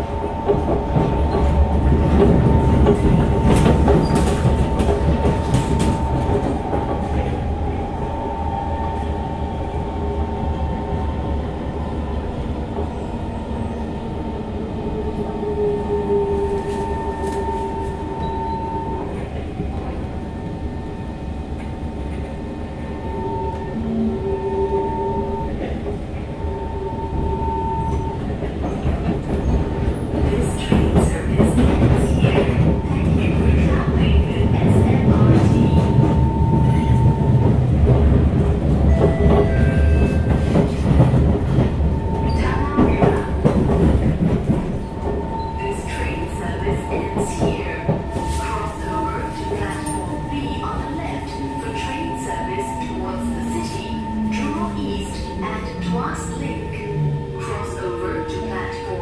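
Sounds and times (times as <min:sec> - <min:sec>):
train wheels rumbling on rail: 0:00.0 - 0:59.0.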